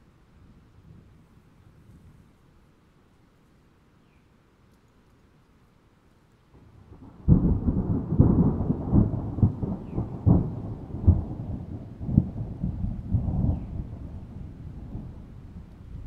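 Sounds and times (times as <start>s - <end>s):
thunder rumbling and crackling: 6.6s - 16.0s.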